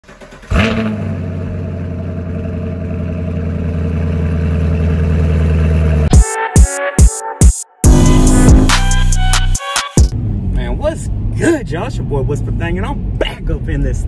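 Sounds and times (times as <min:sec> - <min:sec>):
car engine starting and idling: 0:00.0 - 0:06.2.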